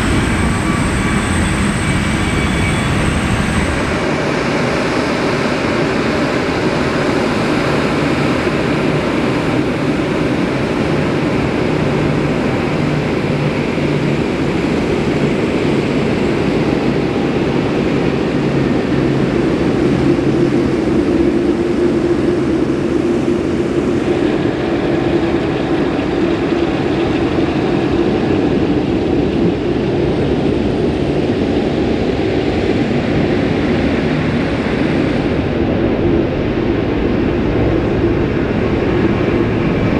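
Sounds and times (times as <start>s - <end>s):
jet engines rumbling: 0.0s - 39.9s.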